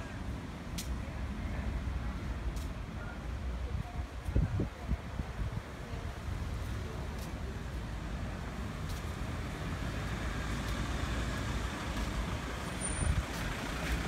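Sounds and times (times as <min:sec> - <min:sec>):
vehicle driving over brick street: 0:07.1 - 0:14.0.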